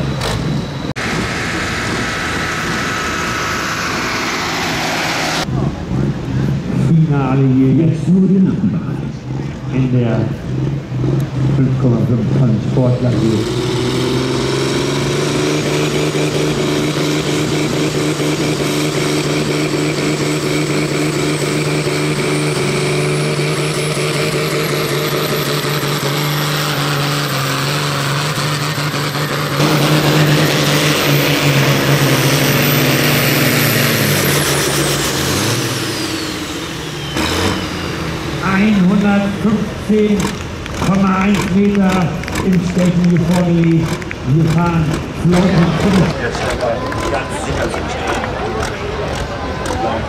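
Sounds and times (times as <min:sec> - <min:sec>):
tractor diesel engine under load: 0:00.0 - 0:50.0.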